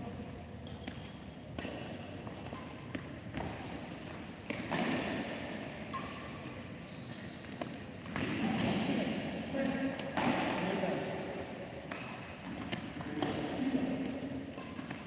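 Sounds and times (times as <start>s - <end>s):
shoe squeaks on court: 0.6s - 4.4s, 5.2s - 10.2s
racket hitting shuttlecock: 0.6s - 6.6s, 7.4s - 8.8s, 10.0s - 10.7s, 11.8s - 15.0s.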